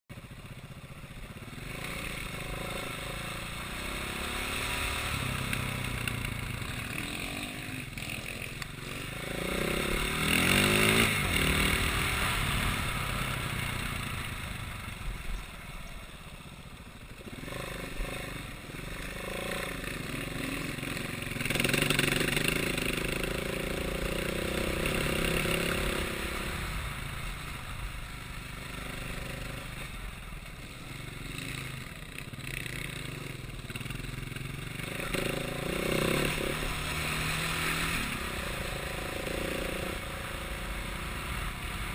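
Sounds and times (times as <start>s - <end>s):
vehicle engine revving: 1.5s - 14.9s.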